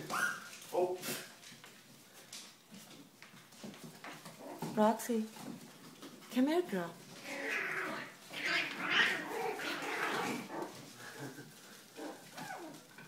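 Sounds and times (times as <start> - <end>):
puppies whining: 0.0 - 0.7, 7.2 - 13.0.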